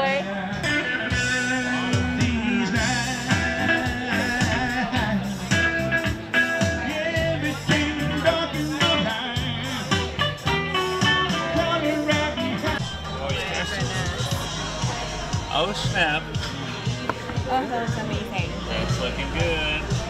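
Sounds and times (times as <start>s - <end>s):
person singing: 0.0s - 10.1s
bass line: 0.0s - 20.0s
guitar plucking: 0.6s - 20.0s.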